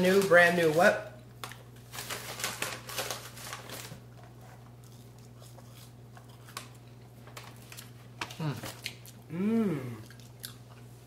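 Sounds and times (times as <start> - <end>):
steady low hum: 3.0 - 11.0
person biting and chewing: 7.6 - 10.9.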